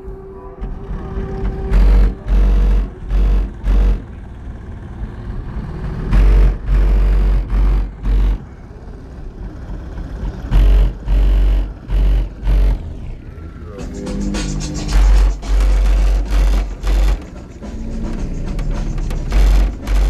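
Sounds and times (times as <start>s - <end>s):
deep bass hits from subwoofers: 1.6s - 4.2s, 6.1s - 8.5s, 10.4s - 20.0s
quieter music: 12.7s - 20.0s.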